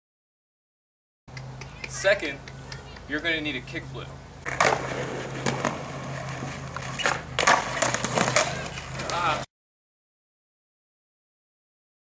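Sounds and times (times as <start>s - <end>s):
skateboard wheels rolling on concrete: 3.1s - 9.5s
skateboard clacks: 4.4s - 9.4s.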